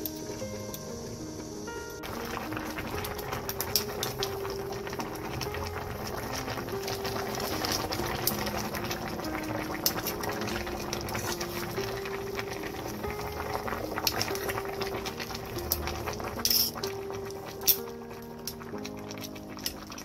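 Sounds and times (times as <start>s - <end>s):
sauce simmering and bubbling: 0.3s - 20.0s.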